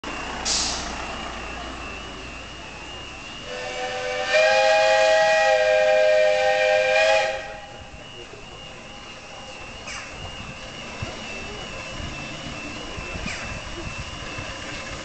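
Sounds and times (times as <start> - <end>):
steam hissing: 0.1 - 15.0
steam whistle blast: 3.3 - 8.1.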